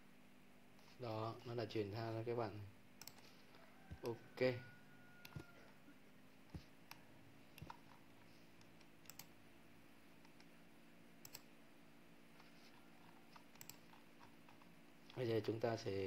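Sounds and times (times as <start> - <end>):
faint room hum: 0.0 - 16.0
computer mouse clicking: 3.0 - 4.2, 5.2 - 5.6, 6.5 - 9.4, 10.2 - 10.5, 11.2 - 11.5, 12.4 - 15.2.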